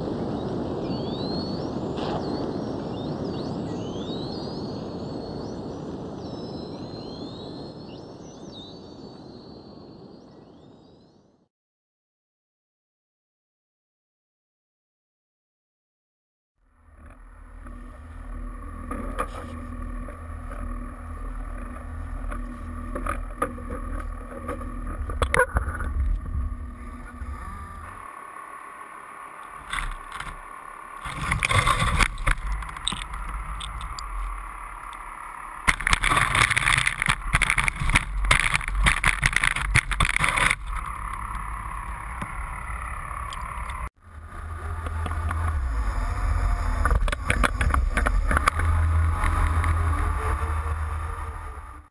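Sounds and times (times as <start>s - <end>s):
boat engine and hydraulic hauler rumbling: 16.7s - 51.9s.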